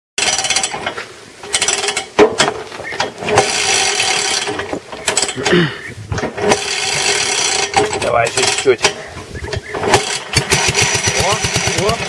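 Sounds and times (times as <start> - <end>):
engine being cranked by hand: 0.2 - 12.0
ratcheting scraping mechanical noise: 0.2 - 12.0.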